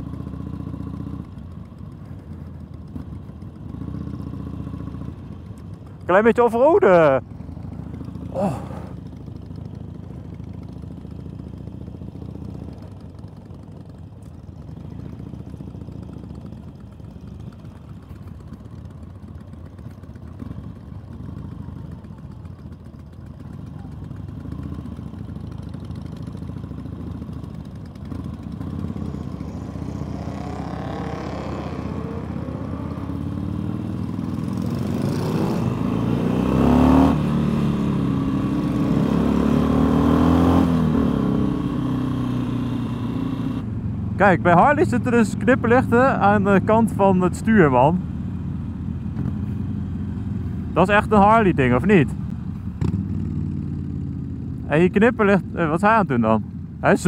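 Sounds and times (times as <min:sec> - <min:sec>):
motorcycle engines rumbling: 0:00.0 - 0:57.0
motorcycle revs rising: 0:25.9 - 0:47.9, 0:50.0 - 0:56.3.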